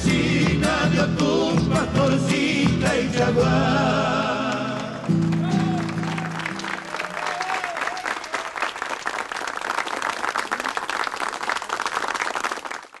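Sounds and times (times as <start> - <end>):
applause: 5.0 - 13.0.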